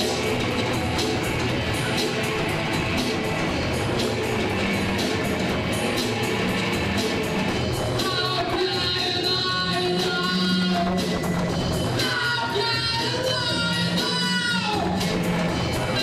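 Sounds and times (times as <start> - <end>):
live rock band playing: 0.0 - 16.0
person singing: 8.0 - 11.1, 11.9 - 15.2.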